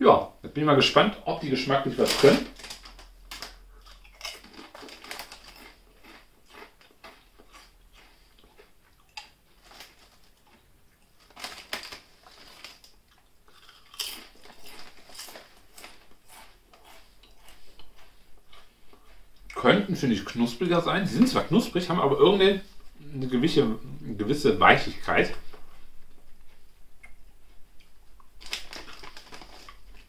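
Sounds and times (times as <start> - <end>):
foil bag crinkling: 1.6 - 7.2, 9.5 - 10.6, 11.2 - 13.0, 14.0 - 16.2, 28.4 - 30.0
chewing crisp chips: 2.0 - 19.6, 27.8 - 30.0.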